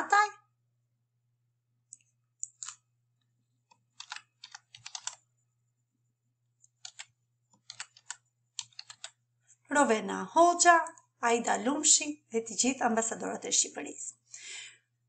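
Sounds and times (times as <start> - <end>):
typing on computer keyboard: 2.4 - 2.8, 3.7 - 5.2, 6.7 - 9.2.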